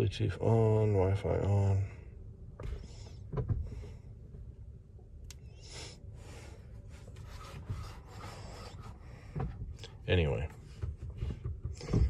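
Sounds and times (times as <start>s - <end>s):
low cabin hum: 0.0s - 12.0s
soft breaths: 5.3s - 10.0s.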